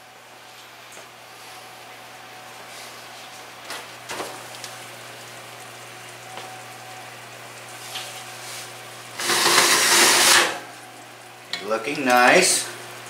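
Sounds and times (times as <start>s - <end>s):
oven rack scraping out: 9.2s - 10.6s.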